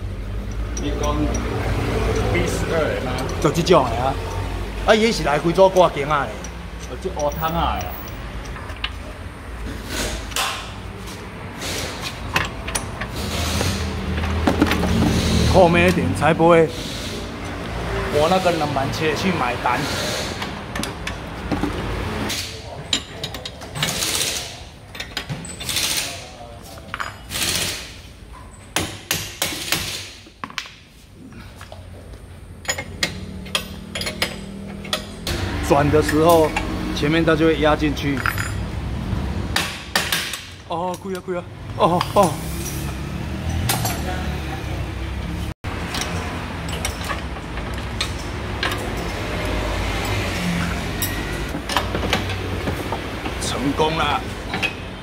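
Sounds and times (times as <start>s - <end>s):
metal tools clinking: 0.4s - 9.1s, 22.8s - 27.5s, 32.6s - 35.3s, 38.0s - 38.7s, 45.8s - 52.4s
sharp clicks and knocks: 45.7s - 53.5s.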